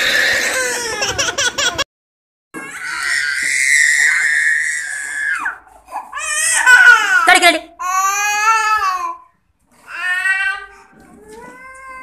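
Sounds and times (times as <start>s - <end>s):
baby screaming and crying: 0.0s - 1.8s, 2.6s - 7.2s.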